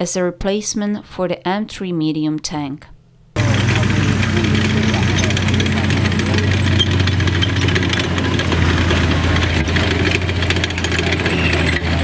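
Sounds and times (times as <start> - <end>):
fast ticking track clatter: 3.4 - 12.0
tank engine running: 3.4 - 12.0.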